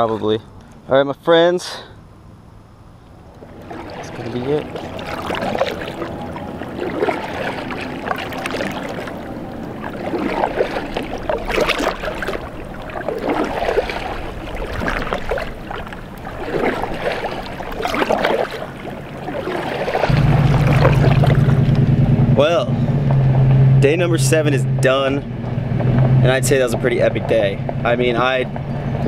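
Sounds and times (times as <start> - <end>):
car driving hum: 0.0 - 29.0
paddle splashing in water: 3.3 - 22.3.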